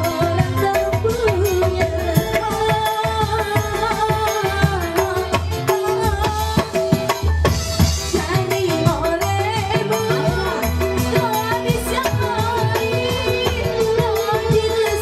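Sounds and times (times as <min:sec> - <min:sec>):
electronic keyboard: 0:00.0 - 0:15.0
hand drums beat: 0:00.0 - 0:15.0
woman singing into a microphone: 0:00.0 - 0:15.0.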